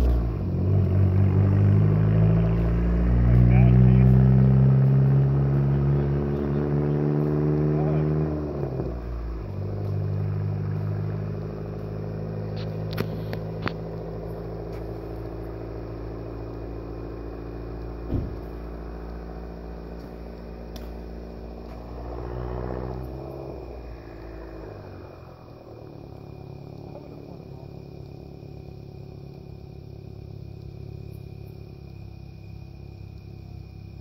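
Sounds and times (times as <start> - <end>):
car exhaust droning: 0.0 - 34.0
short thump: 18.0 - 18.6.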